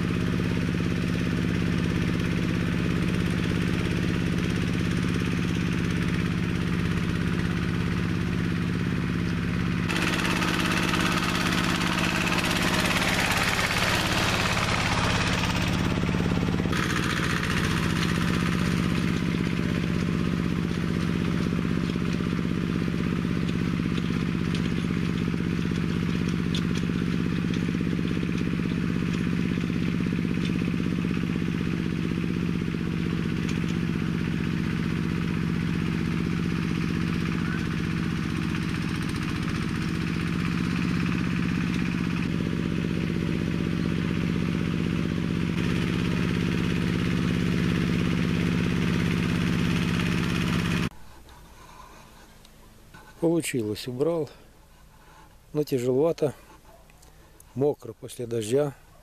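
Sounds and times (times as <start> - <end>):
tractor engine running under load: 0.0 - 59.0.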